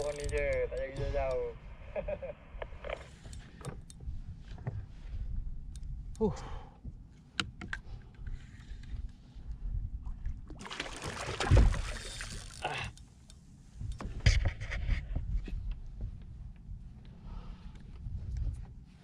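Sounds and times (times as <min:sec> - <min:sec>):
constant low rumble: 0:00.0 - 0:10.6, 0:11.4 - 0:19.0
water sloshing and splashing: 0:10.0 - 0:13.0.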